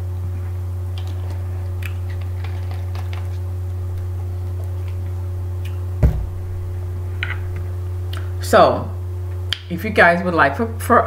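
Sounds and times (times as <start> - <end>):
steady low hum: 0.0 - 11.0
sharp thump: 6.0 - 6.8.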